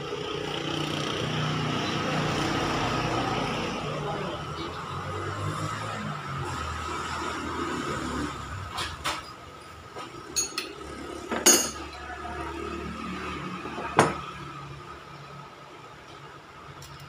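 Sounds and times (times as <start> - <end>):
metal tool clinks and clicks: 10.4 - 10.7
ringing metal clinks: 10.4 - 10.7.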